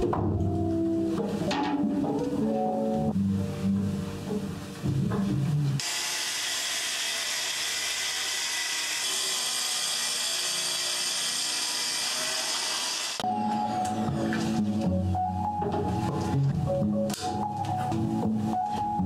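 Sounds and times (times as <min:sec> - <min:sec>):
background music: 0:00.0 - 0:05.8, 0:13.2 - 0:19.0
saw cutting wood: 0:05.8 - 0:13.2.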